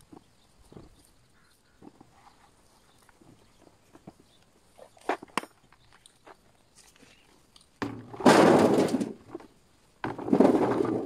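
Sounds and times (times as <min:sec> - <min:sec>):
potatoes tumbling into metal tray: 0:07.8 - 0:11.0.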